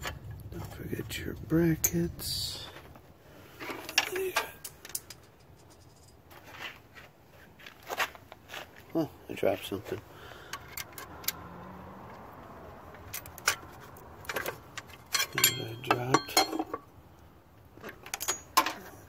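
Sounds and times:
metal tools clinking: 0:03.6 - 0:06.3, 0:13.1 - 0:16.9, 0:17.8 - 0:19.0
metallic ring: 0:15.1 - 0:16.8.

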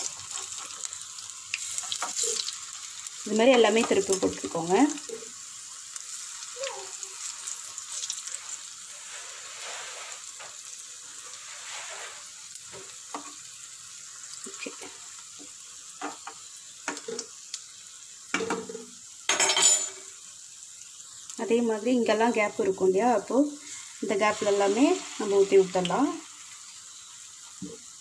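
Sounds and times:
fritters sizzling in hot oil: 0:00.0 - 0:28.0
metal spoon clinking and scraping pan: 0:18.4 - 0:20.1.

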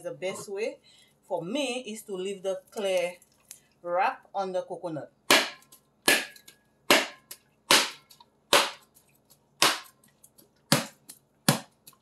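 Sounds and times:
coconut shell knocks: 0:05.3 - 0:08.9, 0:09.6 - 0:10.0, 0:10.7 - 0:11.8.

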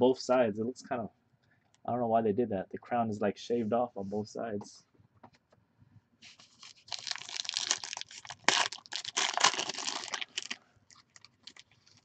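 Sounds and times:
foil wrapper tearing and crinkling: 0:06.4 - 0:12.0.

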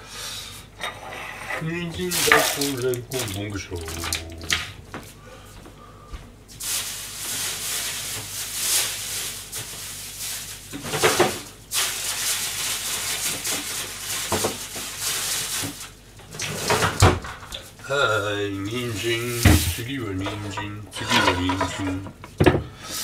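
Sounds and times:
water running from a tap: 0:02.0 - 0:04.6.

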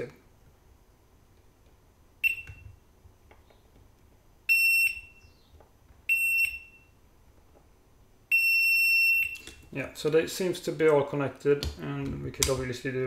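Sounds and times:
multimeter beeps: 0:02.2 - 0:02.8, 0:04.5 - 0:05.4, 0:06.1 - 0:07.0, 0:08.3 - 0:09.6.

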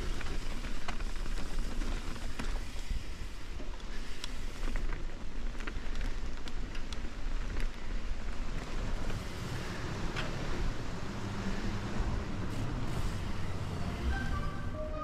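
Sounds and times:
bike rattling and clicking: 0:00.0 - 0:13.0
bike tyres rolling on dirt: 0:00.0 - 0:13.8
deep rumble on bridge deck: 0:08.6 - 0:15.0.

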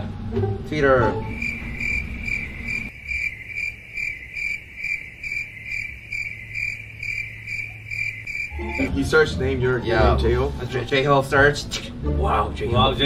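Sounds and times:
cricket chirping: 0:01.2 - 0:09.0.

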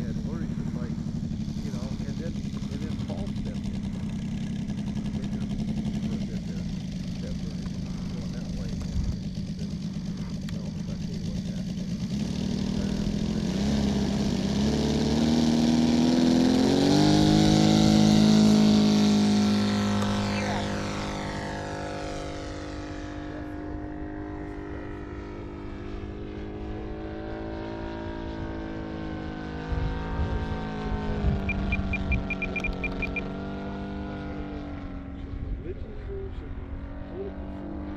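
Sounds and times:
model plane engine throttling up: 0:00.0 - 0:35.4
high beeps: 0:31.5 - 0:33.2.

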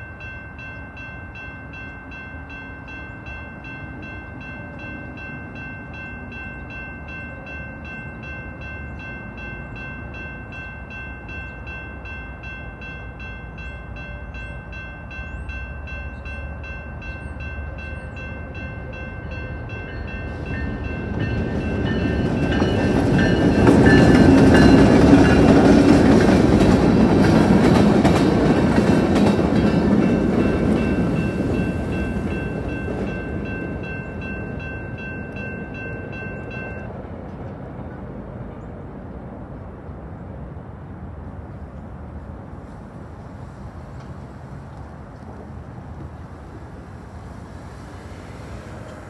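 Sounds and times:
crossing bell ringing: 0:00.0 - 0:37.0
freight train rumbling past: 0:00.0 - 0:49.0.

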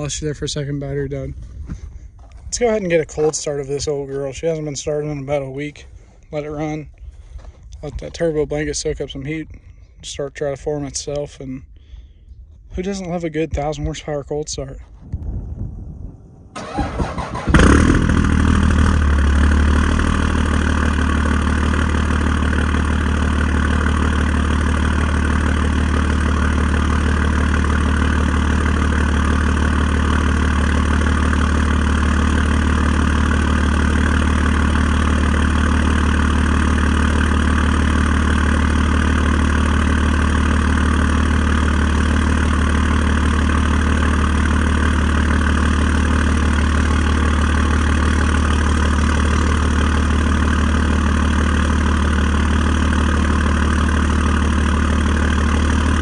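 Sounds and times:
diesel engine starting and idling: 0:16.4 - 0:56.0.

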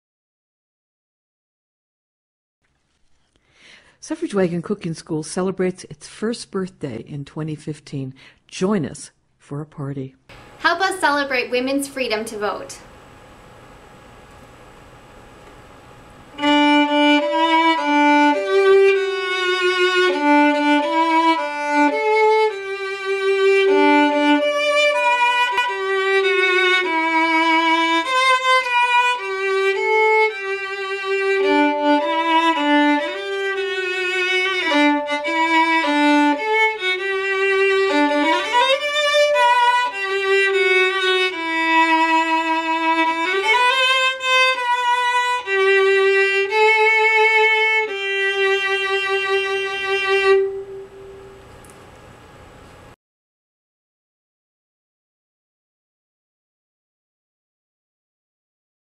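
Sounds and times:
violin playing with vibrato: 0:16.3 - 0:51.4.

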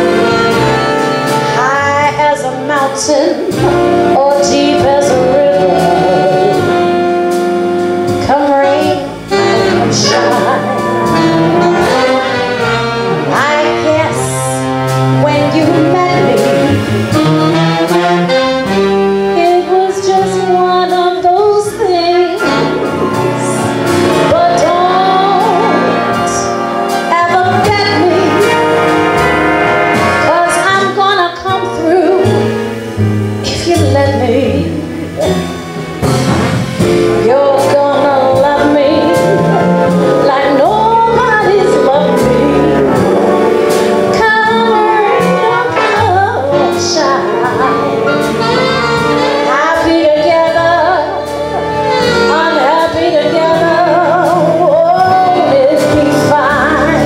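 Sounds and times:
big band brass and saxophones: 0:00.0 - 0:57.0
woman singing: 0:01.5 - 0:07.0, 0:08.1 - 0:12.4, 0:13.3 - 0:16.7, 0:19.4 - 0:28.6, 0:30.2 - 0:32.5, 0:33.4 - 0:34.8, 0:37.2 - 0:48.6, 0:49.2 - 0:57.0.

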